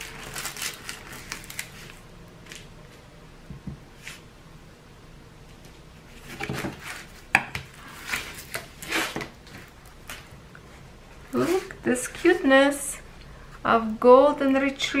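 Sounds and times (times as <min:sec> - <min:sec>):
plastic film rustling and crinkling: 0:00.0 - 0:02.7, 0:06.2 - 0:10.3.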